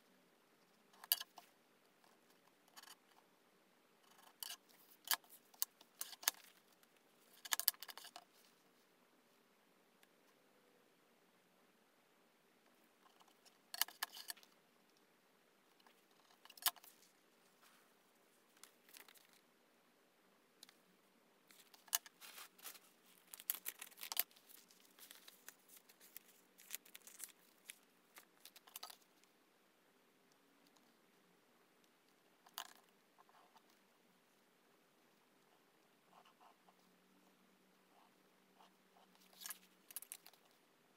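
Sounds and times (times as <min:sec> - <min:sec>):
paper rustling: 0:21.5 - 0:28.6.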